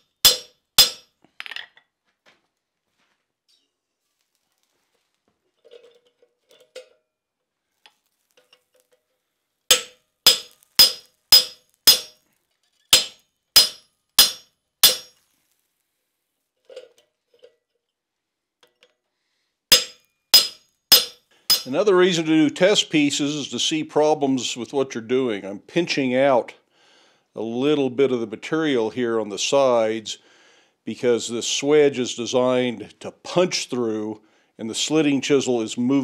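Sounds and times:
hammer striking chisel on hot iron: 0:00.0 - 0:01.1, 0:09.7 - 0:12.2, 0:12.9 - 0:15.2, 0:19.7 - 0:21.8.

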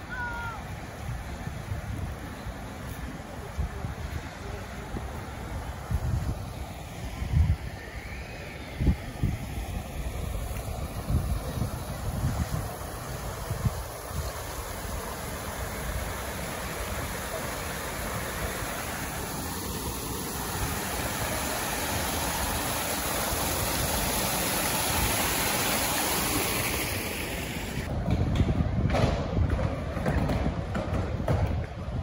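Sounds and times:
wind rumbling on microphone: 0:00.0 - 0:32.0
water pouring over stone fountain: 0:10.1 - 0:27.9.

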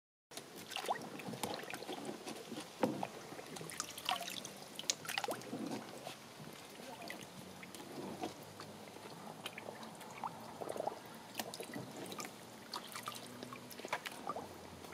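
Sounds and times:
water splashing in paddling pool: 0:00.4 - 0:14.9
water dripping: 0:03.0 - 0:14.9.

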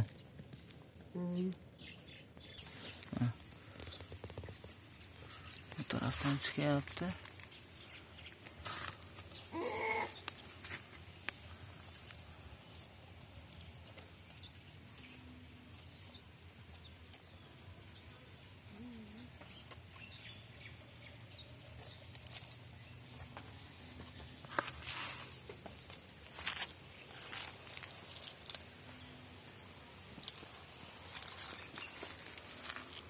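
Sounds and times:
rustling: 0:01.6 - 0:17.2, 0:21.2 - 0:33.0
faint bird chirps: 0:16.0 - 0:22.0.

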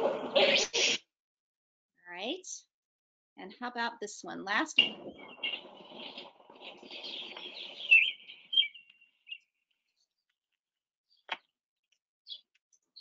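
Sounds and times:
robin song: 0:03.4 - 0:09.5.

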